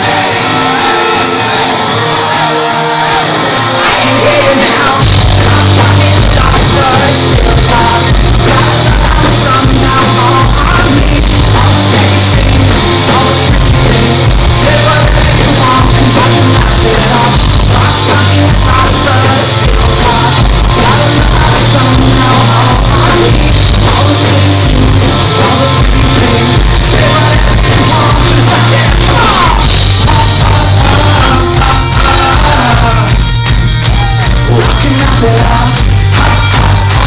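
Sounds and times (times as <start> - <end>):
person singing lead vocal: 0.0 - 33.3, 33.9 - 37.0
bass guitar: 0.0 - 37.0
drums: 0.0 - 37.0
electric guitar: 0.0 - 37.0.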